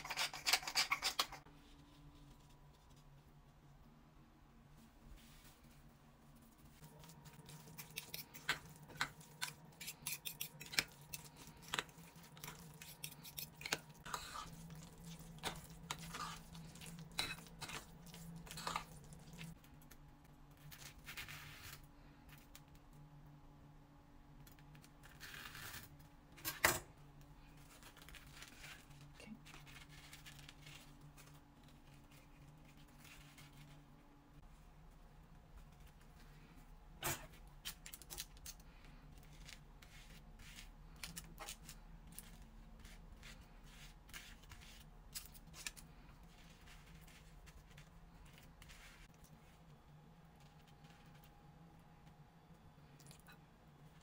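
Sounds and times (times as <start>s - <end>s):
metal spoon scraping ceramic bowl: 0.0s - 1.4s.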